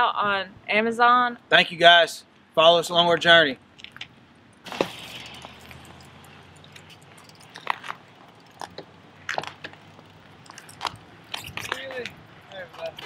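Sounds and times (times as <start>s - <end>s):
bicycle and cleat clicks: 5.4s - 13.0s.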